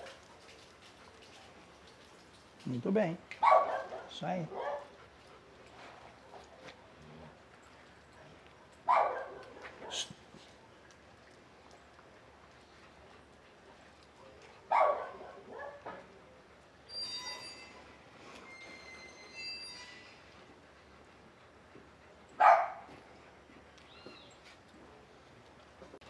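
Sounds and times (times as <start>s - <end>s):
dog barking sharply: 3.4s - 4.8s, 8.9s - 10.1s, 14.7s - 15.9s, 22.4s - 22.8s.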